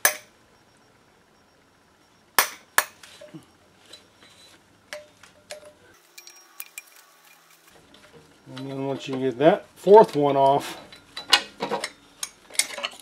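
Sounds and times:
metal tools clinking: 2.9 - 9.3, 10.1 - 13.0.

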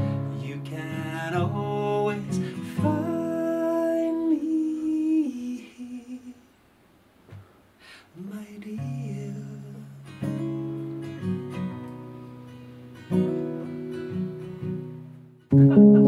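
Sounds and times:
acoustic guitar strumming: 0.0 - 4.3, 8.8 - 16.0
man singing: 0.0 - 6.5, 8.1 - 10.3.

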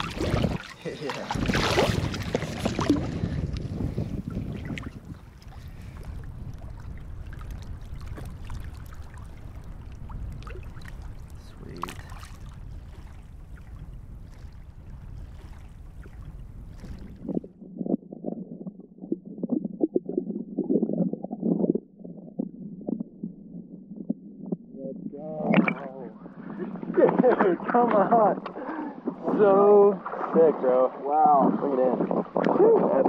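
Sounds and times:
muffled underwater bubbling: 0.0 - 13.0, 16.0 - 27.0
water lapping: 0.0 - 17.7, 25.5 - 33.0
wind on microphone: 0.0 - 33.0.

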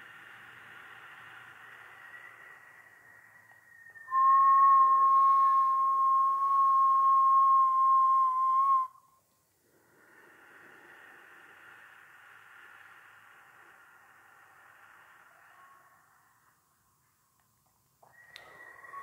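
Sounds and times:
soft breath hiss: 0.0 - 19.0
person whistling a steady note: 2.1 - 9.2, 18.1 - 19.0.

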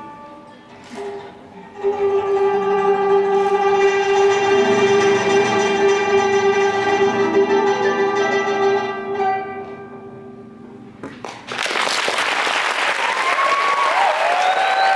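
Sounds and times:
audience applause: 11.2 - 14.9.

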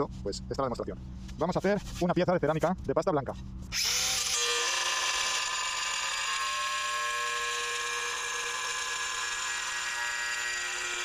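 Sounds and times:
angle grinder cutting tile: 3.7 - 11.0.

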